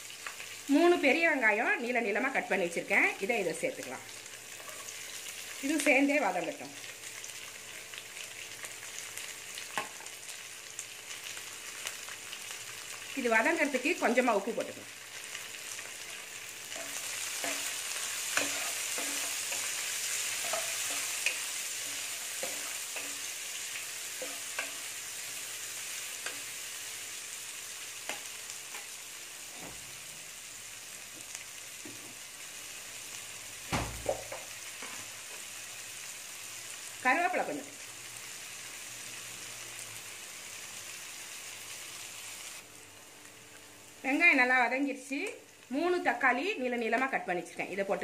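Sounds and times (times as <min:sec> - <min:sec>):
onions sizzling in oil: 0:00.0 - 0:48.0
thump: 0:33.7 - 0:34.3.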